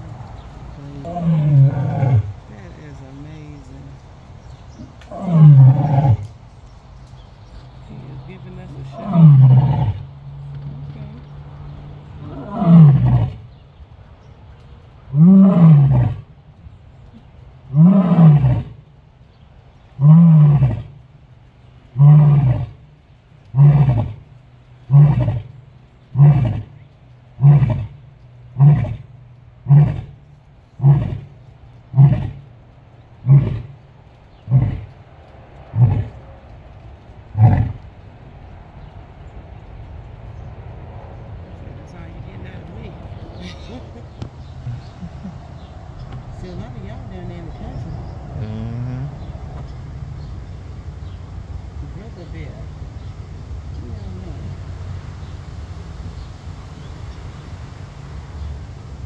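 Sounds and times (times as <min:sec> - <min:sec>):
lion roaring: 0:00.8 - 0:02.4, 0:04.8 - 0:06.3, 0:08.9 - 0:10.0, 0:12.2 - 0:13.4, 0:15.1 - 0:16.3, 0:17.7 - 0:18.8, 0:20.0 - 0:21.0, 0:22.0 - 0:22.8, 0:23.5 - 0:24.2, 0:24.9 - 0:25.5, 0:26.1 - 0:26.8, 0:27.4 - 0:28.0, 0:28.6 - 0:29.0, 0:29.6 - 0:30.2, 0:30.8 - 0:31.3, 0:31.9 - 0:32.5, 0:33.2 - 0:33.8, 0:34.4 - 0:35.0, 0:35.7 - 0:36.2, 0:37.3 - 0:37.8, 0:47.8 - 0:49.4.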